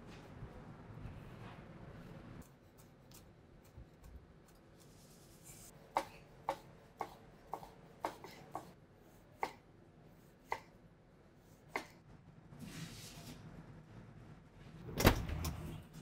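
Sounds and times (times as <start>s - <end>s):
knife chopping on wooden board: 5.9s - 8.8s.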